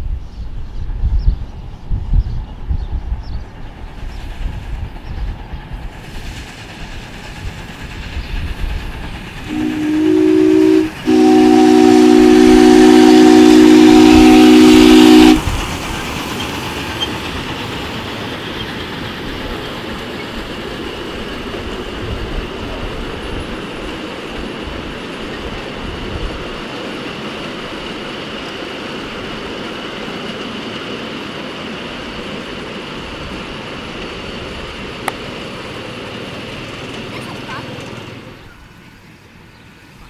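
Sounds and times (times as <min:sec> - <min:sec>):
model train running on track: 0:00.0 - 0:40.0
steam whistle chord: 0:09.5 - 0:15.5.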